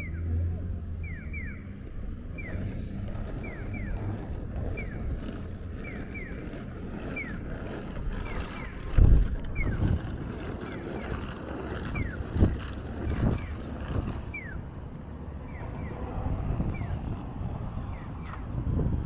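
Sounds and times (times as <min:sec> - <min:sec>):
traffic rumble: 0:00.0 - 0:19.0
wind: 0:00.0 - 0:19.0
crossing signal chirping: 0:01.0 - 0:10.0, 0:11.8 - 0:17.1.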